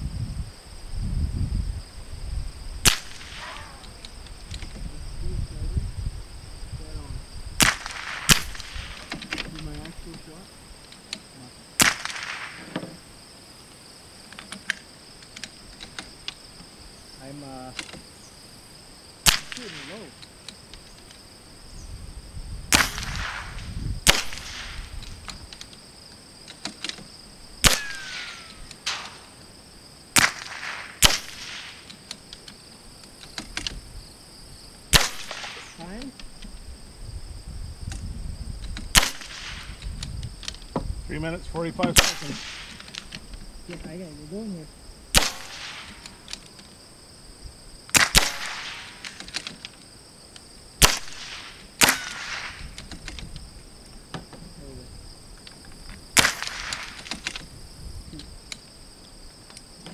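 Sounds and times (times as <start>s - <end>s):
rifle shots cracking: 2.8s - 4.0s, 7.6s - 9.3s, 11.8s - 12.8s, 19.2s - 20.1s, 22.7s - 24.9s, 27.6s - 29.3s, 30.2s - 31.9s, 34.9s - 35.8s, 38.9s - 39.8s, 41.8s - 43.1s, 45.1s - 46.3s, 47.9s - 49.4s, 50.8s - 52.8s, 56.1s - 57.2s.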